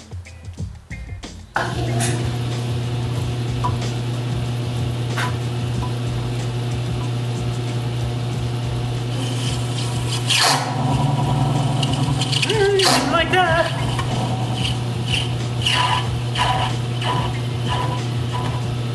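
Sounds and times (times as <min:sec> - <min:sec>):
lathe motor hum: 0:01.6 - 0:18.9
tool scraping brass bar: 0:09.2 - 0:18.7.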